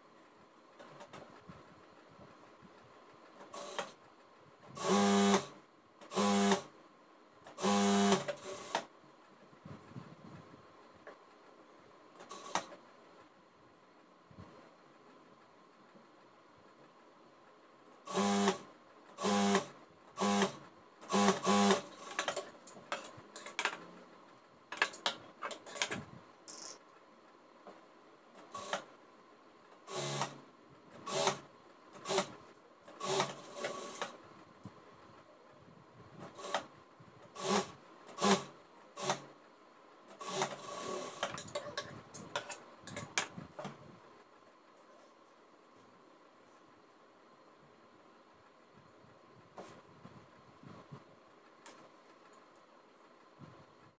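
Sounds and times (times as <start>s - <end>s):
sewing machine stitching: 3.4s - 4.0s, 4.7s - 6.7s, 7.5s - 8.9s, 12.2s - 12.8s, 18.1s - 24.0s, 28.4s - 28.9s, 29.9s - 34.2s, 36.2s - 39.4s, 40.1s - 43.2s.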